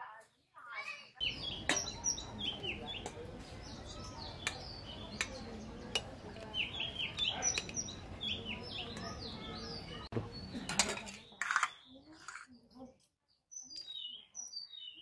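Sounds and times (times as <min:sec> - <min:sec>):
small birds chirping: 0:00.0 - 0:15.0
metal ladle clinking on pot: 0:01.6 - 0:02.1, 0:04.3 - 0:07.9.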